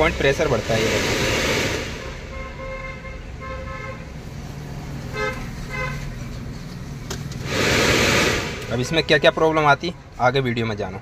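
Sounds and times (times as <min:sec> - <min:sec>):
loud rush of air: 0:00.0 - 0:02.9, 0:07.4 - 0:09.0.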